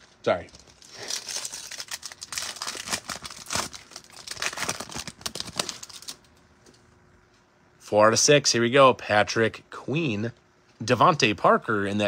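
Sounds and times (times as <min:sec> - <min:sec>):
foil pack tearing and crinkling: 0:00.0 - 0:06.3.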